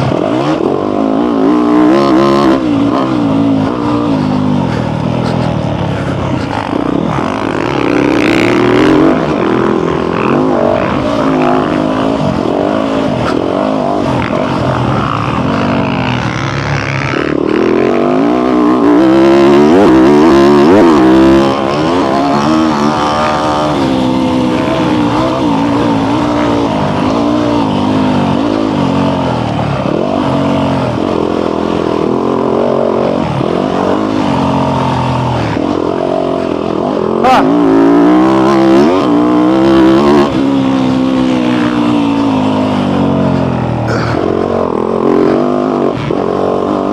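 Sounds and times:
motocross bike engine revving: 0.0s - 46.9s.

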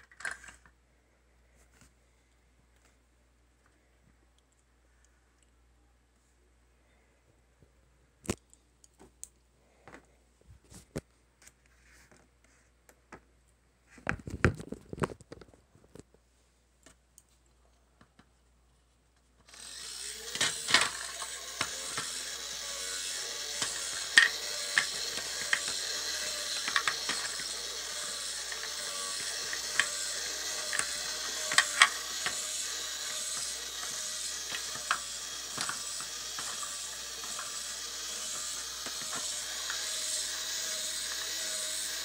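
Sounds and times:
plastic parts clicking: 0.0s - 0.8s, 19.4s - 42.0s
rapid mechanism clicking: 19.5s - 42.0s
small electric motor running: 19.5s - 42.0s.

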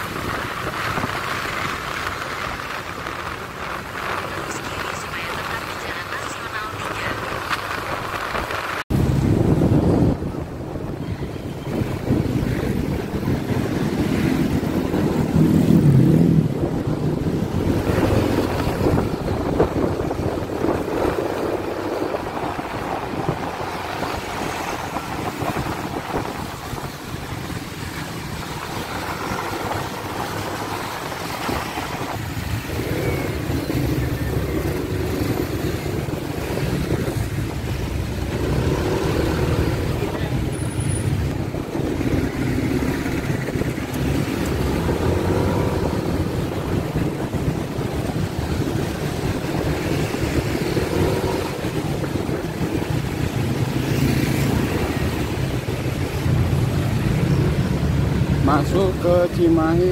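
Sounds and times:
traffic vehicles: 0.0s - 59.9s
wind buffeting microphone: 0.0s - 59.9s.

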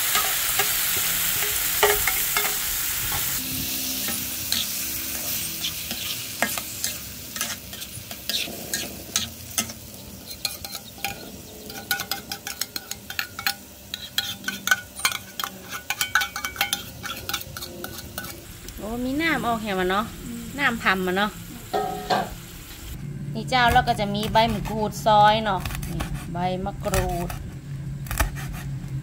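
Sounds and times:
metal spatula scraping wok: 0.0s - 18.5s, 21.7s - 22.9s
food sizzling in a wok: 0.0s - 23.0s.

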